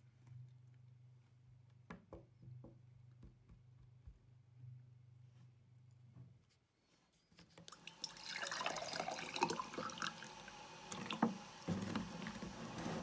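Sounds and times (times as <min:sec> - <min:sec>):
water pouring into glass: 0:07.7 - 0:11.6.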